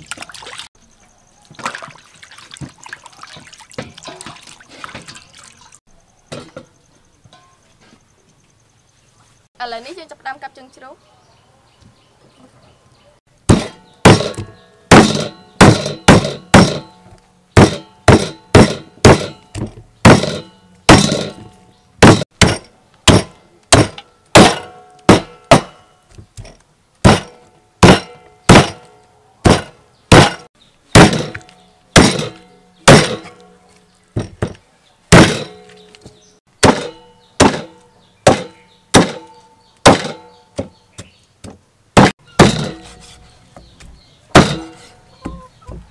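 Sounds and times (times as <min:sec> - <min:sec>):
meat cleaver chopping on wooden block: 0:38.3 - 0:39.2.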